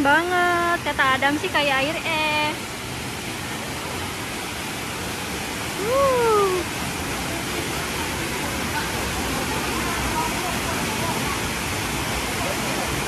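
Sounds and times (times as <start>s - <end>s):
waterfall rushing into pool: 0.0s - 13.0s
person calling out: 5.8s - 6.7s.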